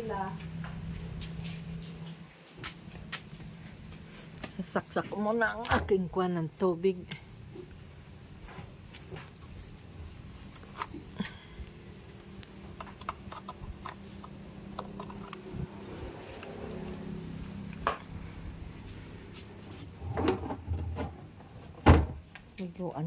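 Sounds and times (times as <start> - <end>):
electric water pump humming: 9.4 - 21.5.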